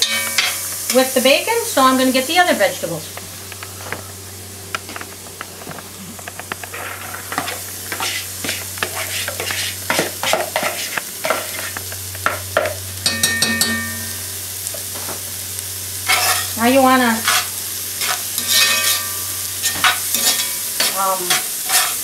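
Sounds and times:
mushrooms and bacon sizzling: 0.0s - 22.0s
spoon scraping vegetables into pot: 6.2s - 11.8s, 19.6s - 22.0s.

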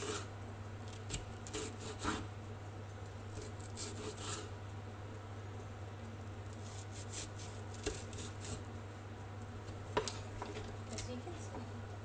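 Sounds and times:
knife slicing pepper: 0.9s - 2.3s, 3.3s - 4.5s, 6.5s - 8.6s.

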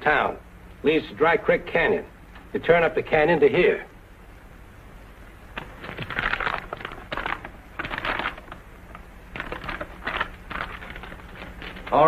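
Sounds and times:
paper rustling and crackling: 5.6s - 12.0s.

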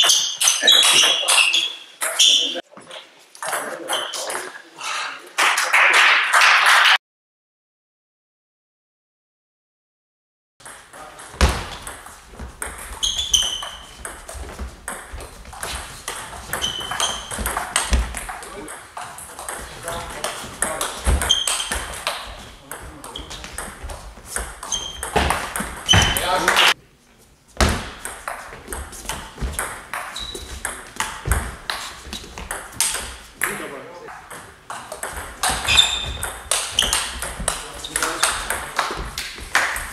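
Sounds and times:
table tennis ball hits: 10.6s - 26.8s, 27.6s - 39.9s.

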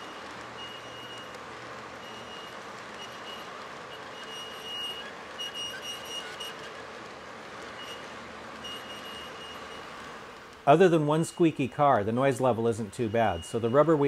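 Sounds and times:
high squeak from train car: 2.0s - 6.9s, 7.8s - 10.0s.

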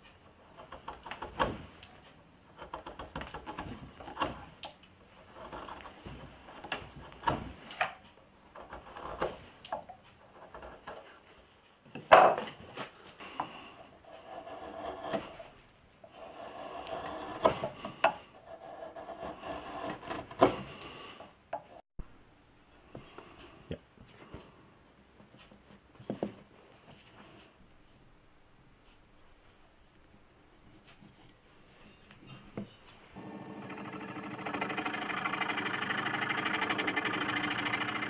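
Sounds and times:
wood chisel paring shavings: 2.5s - 11.4s, 13.2s - 21.2s, 33.2s - 38.0s.

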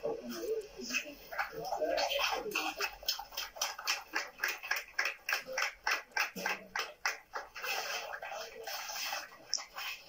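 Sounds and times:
hand clapping: 1.4s - 8.5s.

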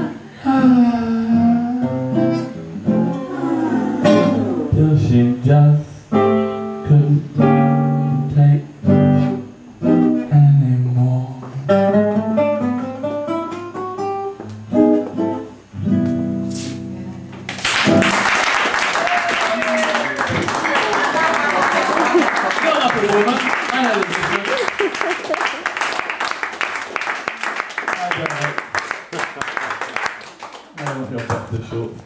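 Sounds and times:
wordless vocal melody: 0.0s - 8.8s
acoustic guitar: 0.0s - 18.4s.

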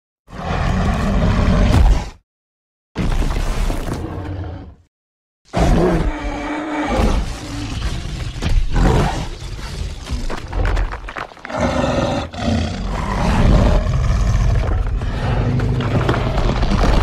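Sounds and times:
creature roars and growls: 0.3s - 2.2s, 5.5s - 10.7s, 11.4s - 17.0s.

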